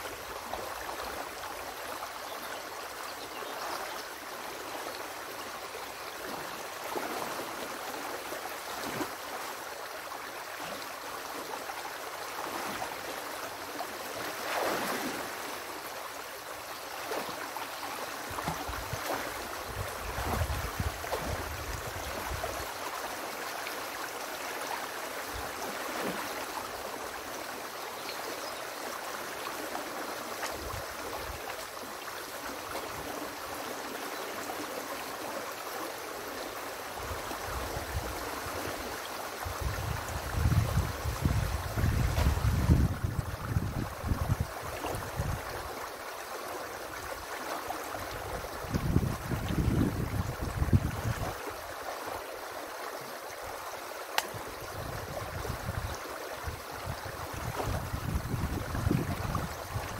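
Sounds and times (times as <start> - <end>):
river rushing and gurgling: 0.0 - 59.9
splashes and knocks of sticks: 14.3 - 15.4, 54.0 - 54.4.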